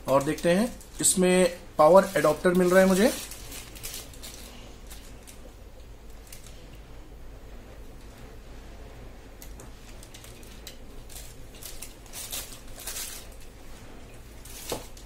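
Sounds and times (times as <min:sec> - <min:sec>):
plastic bag crinkling: 0:00.0 - 0:05.4, 0:09.9 - 0:13.6.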